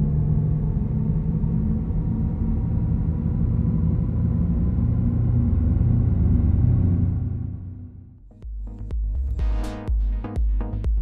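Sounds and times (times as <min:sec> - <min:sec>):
electric car synthesized hum: 0:00.0 - 0:08.2.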